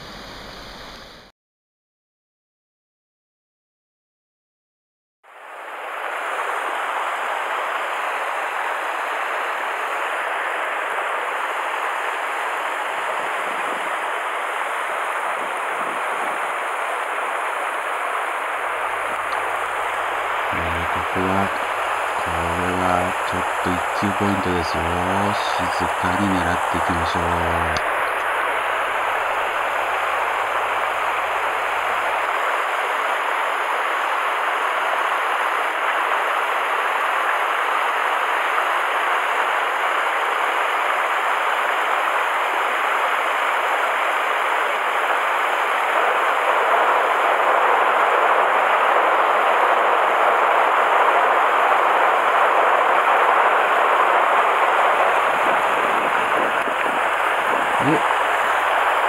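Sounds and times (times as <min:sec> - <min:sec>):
river water rushing over rocks: 0:53.7 - 0:59.0.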